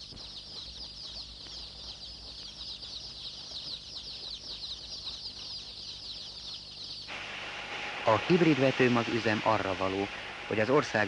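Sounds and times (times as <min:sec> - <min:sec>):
chicks peeping: 0:00.0 - 0:07.2.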